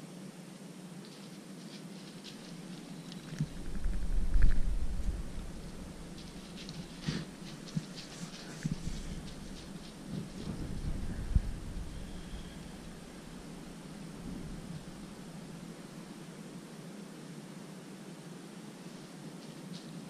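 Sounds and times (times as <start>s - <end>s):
faint ticks and rustles: 0.4s - 17.8s, 18.5s - 20.0s
low rumble: 3.4s - 16.2s.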